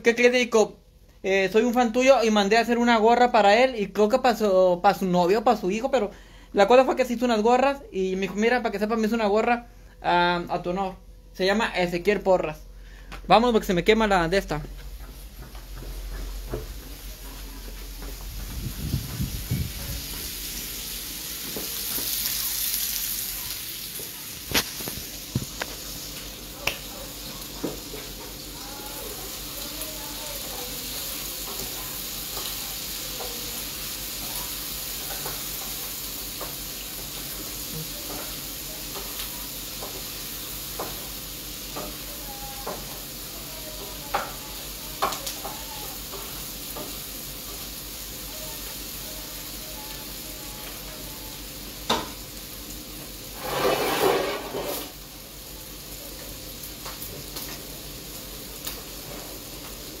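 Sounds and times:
food sizzling in a pan: 0:15.0 - 1:00.0
spatula scraping a pan: 0:53.3 - 0:55.0.

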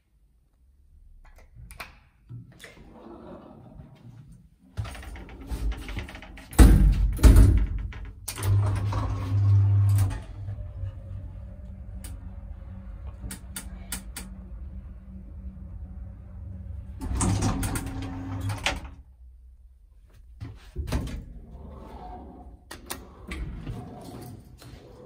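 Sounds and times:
elevator motor hum: 0:08.3 - 0:19.0.

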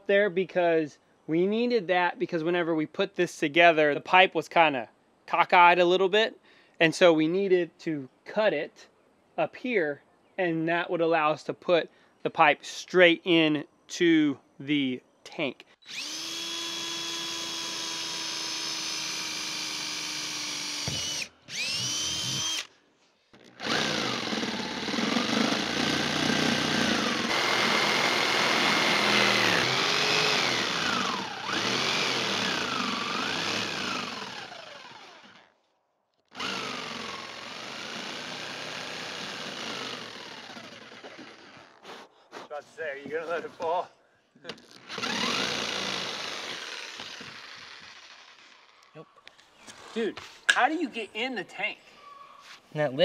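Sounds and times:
jigsaw cutting plastic: 0:15.9 - 0:22.7, 0:23.4 - 0:35.5, 0:36.3 - 0:41.8, 0:44.5 - 0:48.8.

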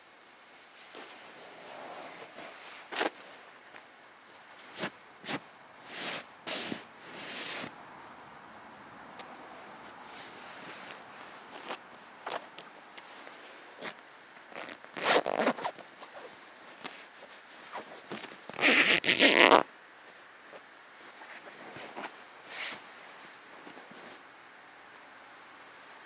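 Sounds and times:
fabric rustling: 0:00.0 - 0:07.8, 0:09.6 - 0:24.2
zipper being pulled open: 0:13.8 - 0:16.3, 0:17.7 - 0:19.7.

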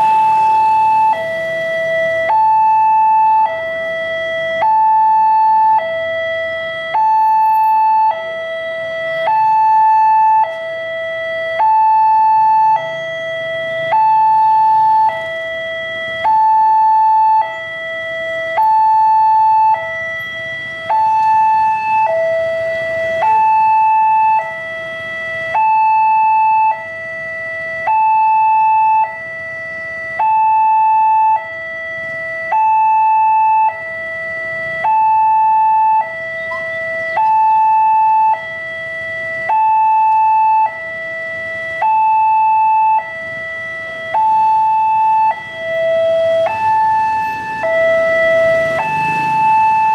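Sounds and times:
two-tone crossing alarm: 0:00.0 - 0:49.9.

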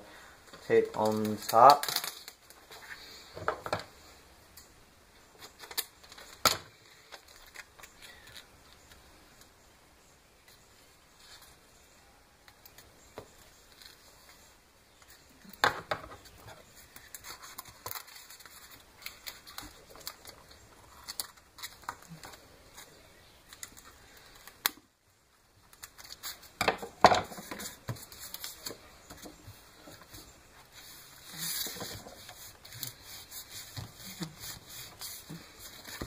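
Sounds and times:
tape crinkling: 0:00.5 - 0:03.9, 0:05.2 - 0:09.0, 0:16.2 - 0:24.9, 0:25.5 - 0:36.0.

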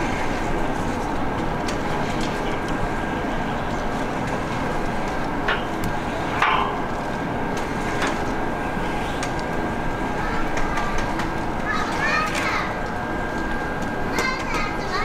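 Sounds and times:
background hubbub and hiss: 0:00.0 - 0:15.0.

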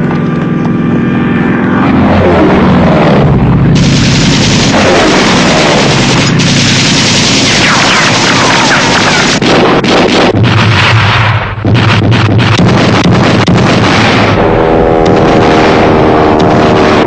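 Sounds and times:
biplane engine droning: 0:00.0 - 0:17.0
machine-gun fire and blasts: 0:03.8 - 0:17.0.

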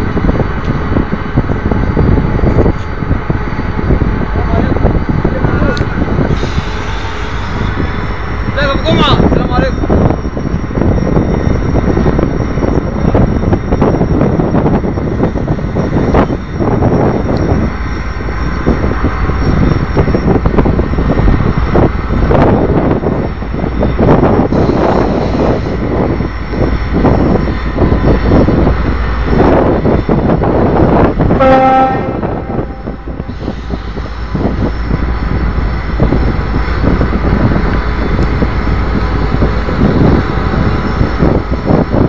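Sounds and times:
diesel locomotive engine rumbling: 0:00.0 - 0:42.0
train horn blast: 0:31.3 - 0:33.8.

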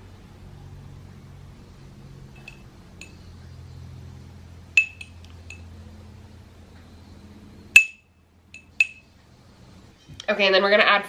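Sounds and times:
metal spoon clinking on glass jar: 0:04.8 - 0:05.6, 0:08.6 - 0:09.0.

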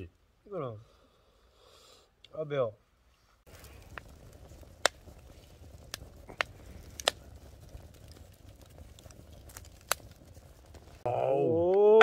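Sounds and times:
wood fire crackling: 0:00.0 - 0:12.0
fire pops: 0:03.4 - 0:11.1.

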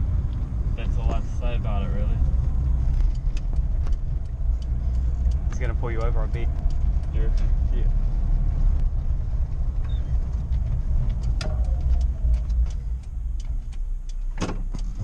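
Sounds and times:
car engine and road noise: 0:00.0 - 0:15.0.

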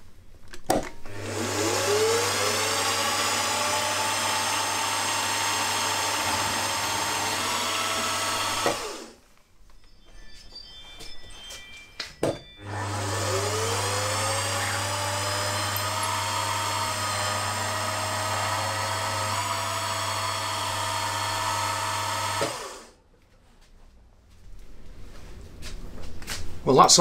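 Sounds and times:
spindle motor whining and humming: 0:01.1 - 0:09.2, 0:12.6 - 0:22.9.

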